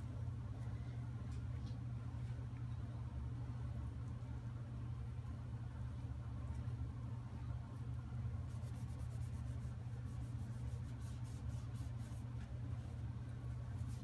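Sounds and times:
steady low hum: 0.0 - 14.0
cloth rag rubbing wood: 8.5 - 12.6.

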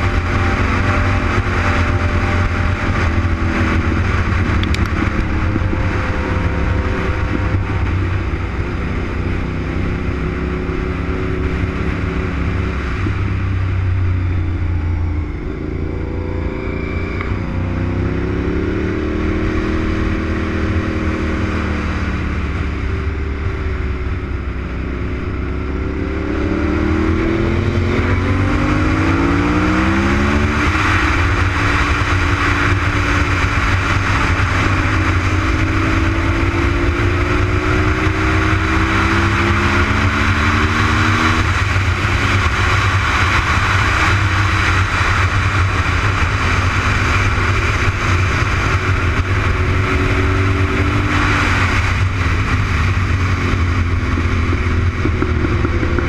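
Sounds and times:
motorcycle engine revving: 0.0 - 56.0
wind rush on microphone: 0.0 - 56.0.

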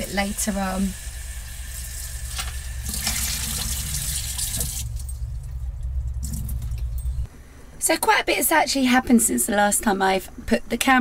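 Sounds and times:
tap water running into saucepan: 0.0 - 4.8
low steady hum: 0.0 - 11.0.

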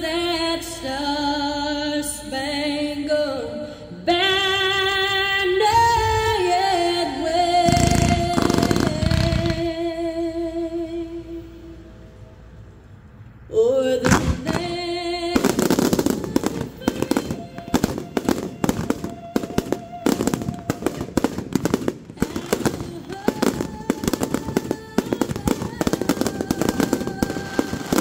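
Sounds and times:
fireworks crackling: 7.4 - 9.9, 14.0 - 28.0
music: 14.0 - 28.0.

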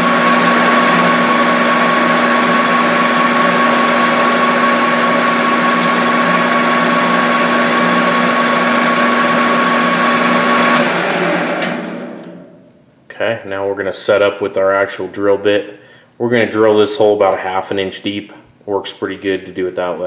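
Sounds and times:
metal lathe running: 0.0 - 11.8
lathe spinning down: 0.0 - 12.4.

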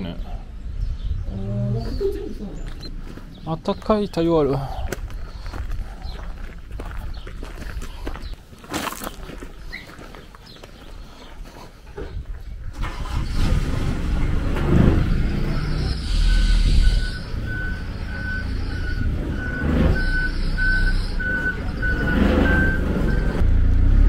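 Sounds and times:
reversing alarm beeping: 15.3 - 23.4.

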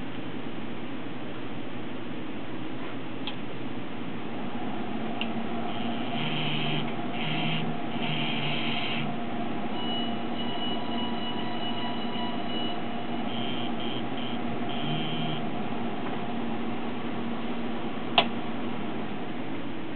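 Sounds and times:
low hum: 3.6 - 19.9
servo motor whining: 5.7 - 9.2.

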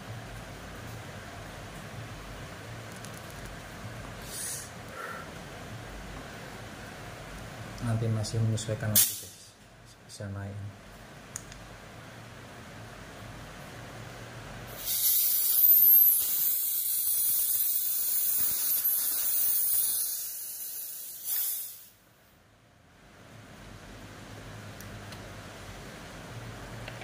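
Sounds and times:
high-pressure air hissing: 4.2 - 4.7, 9.0 - 9.4, 14.7 - 22.1
high whistle: 14.8 - 20.2.

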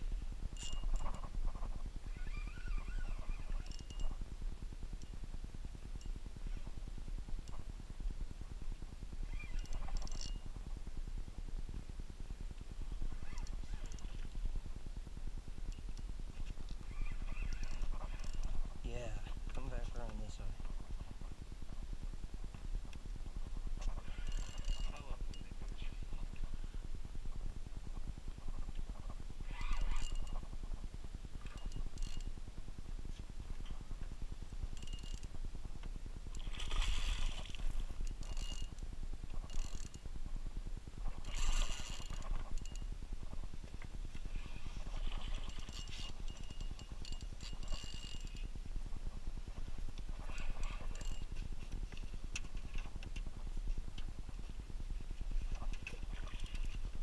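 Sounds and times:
fishing reel whining: 0.5 - 4.3, 9.2 - 10.6, 13.1 - 14.5, 15.7 - 16.1, 16.7 - 18.9, 23.7 - 25.8, 29.4 - 30.6, 31.3 - 32.4, 34.6 - 40.3, 41.0 - 48.7, 50.0 - 51.4, 55.5 - 56.9.

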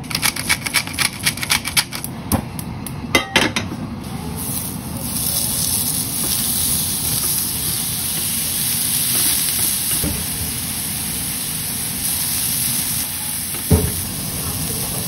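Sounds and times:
mushrooms sizzling on a grill pan: 4.3 - 15.0.

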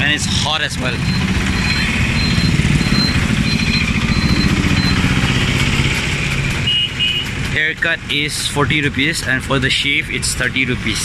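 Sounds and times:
street traffic: 0.0 - 11.0
small motorcycle engine running: 0.8 - 7.6
faint high-pitched beep: 1.0 - 5.0.

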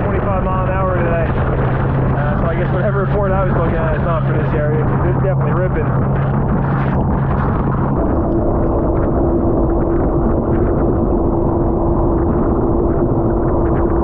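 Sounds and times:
jet ski engine running: 0.0 - 14.0
wind noise: 0.0 - 14.0.

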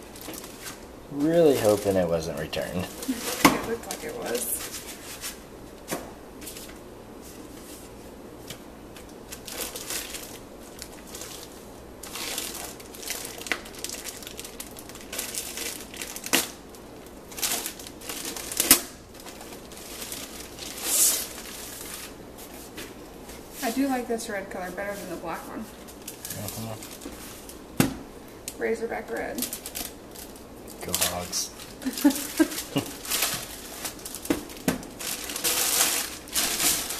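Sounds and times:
plastic bag crinkling: 0.0 - 5.4, 9.0 - 22.7, 25.8 - 27.6, 29.1 - 36.9.

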